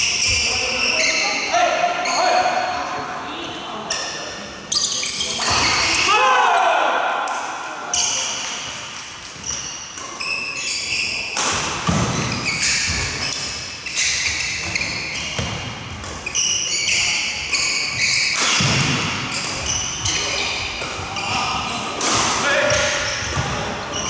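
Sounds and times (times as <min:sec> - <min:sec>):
sneakers squeaking on wooden floor: 0:00.0 - 0:02.8, 0:03.8 - 0:06.1, 0:09.4 - 0:24.0
racket hitting shuttlecock: 0:17.5 - 0:20.1.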